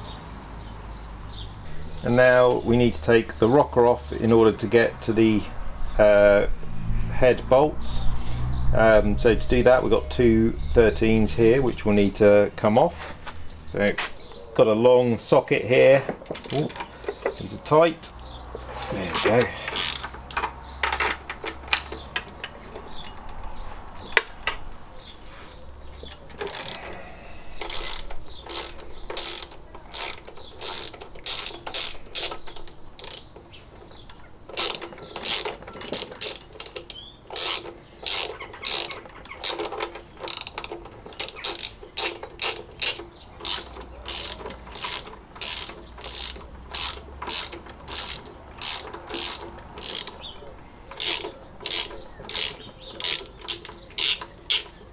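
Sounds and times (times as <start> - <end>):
socket ratchet clicking: 19.1 - 23.4, 26.3 - 26.9, 27.6 - 54.9.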